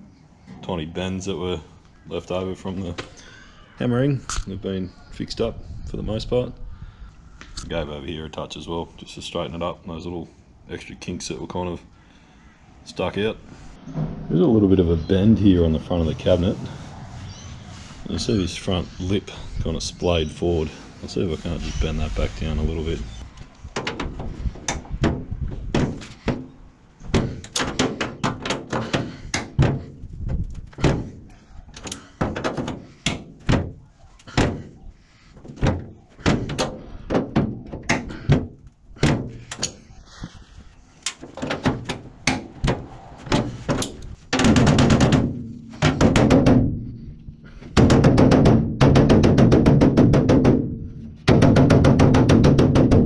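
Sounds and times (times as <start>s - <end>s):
hammer knocking on steel: 47.8s - 53.0s.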